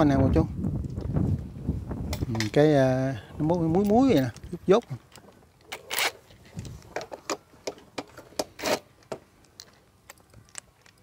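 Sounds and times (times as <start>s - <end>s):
metal fuel cap clicking and scraping: 5.2s - 11.0s.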